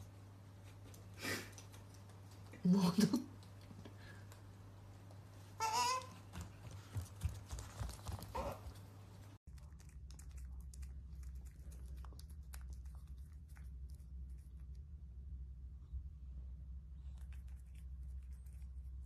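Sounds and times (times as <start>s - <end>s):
otter licking and nibbling: 0.7s - 4.5s, 6.8s - 15.0s, 17.0s - 19.0s
otter feet pattering on floor: 5.6s - 9.4s.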